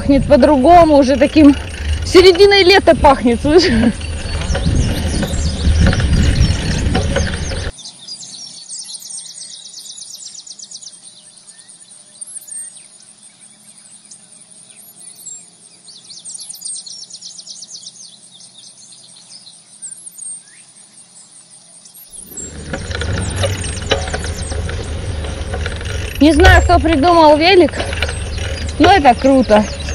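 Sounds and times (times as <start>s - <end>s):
wind noise on microphone: 0.0s - 7.7s, 22.2s - 29.9s
high insect-like trills: 0.0s - 29.9s
small birds chirping: 0.0s - 29.9s.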